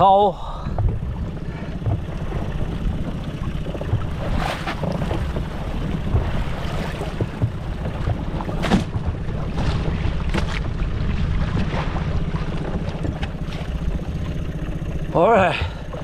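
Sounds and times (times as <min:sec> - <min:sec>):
wind buffeting microphone: 0:00.6 - 0:14.5
sharp knocks on boat: 0:00.7 - 0:14.4.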